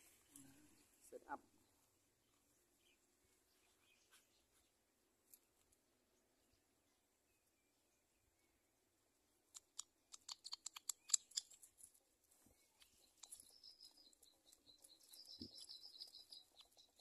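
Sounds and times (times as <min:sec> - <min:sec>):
sharp clicks: 0:09.5 - 0:11.7
bird nestlings chittering: 0:09.8 - 0:11.7, 0:12.6 - 0:17.0.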